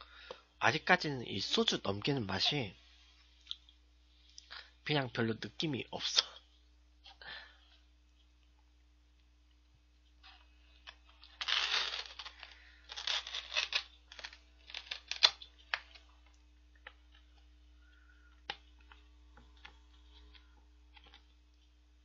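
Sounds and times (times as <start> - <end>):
packaging crinkling and tearing: 10.3 - 16.1.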